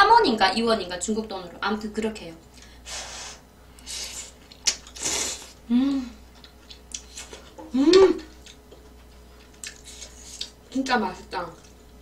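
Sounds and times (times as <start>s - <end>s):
person slurping noodles: 5.0s - 5.6s
person humming: 5.7s - 6.2s, 7.7s - 8.3s.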